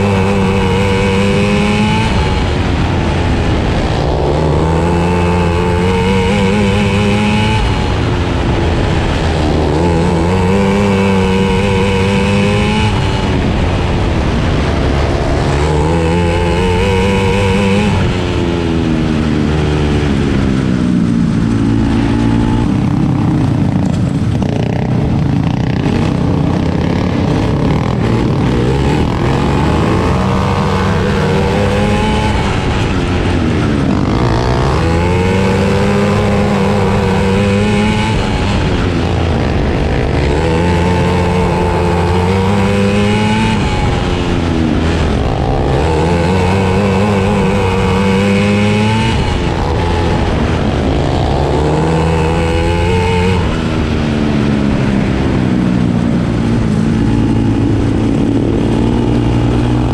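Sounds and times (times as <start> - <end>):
kart engine revving: 0.0 - 59.9
other karts passing: 0.0 - 59.9.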